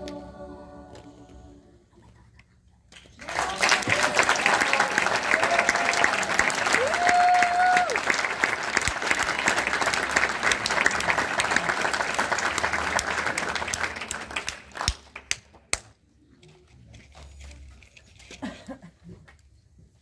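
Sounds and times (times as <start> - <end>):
audience applauding: 3.0 - 15.5.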